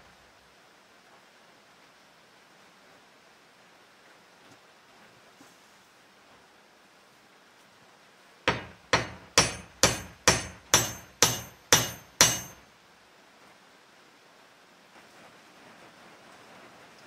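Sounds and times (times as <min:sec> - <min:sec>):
hatchet head struck onto wooden handle: 0:08.5 - 0:12.6.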